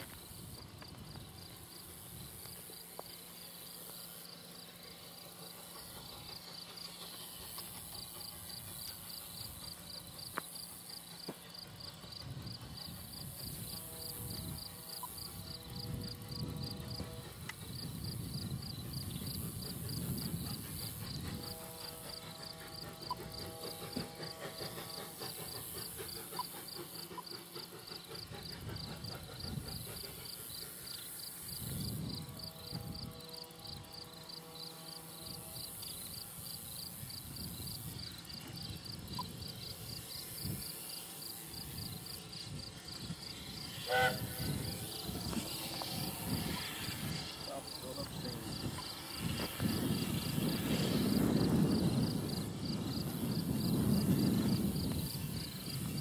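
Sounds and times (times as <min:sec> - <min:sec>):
insects trilling: 0:00.0 - 0:56.0
train whistle blasts: 0:13.4 - 0:18.3, 0:19.4 - 0:25.2, 0:43.5 - 0:52.6
locomotive rumble: 0:38.4 - 0:56.0.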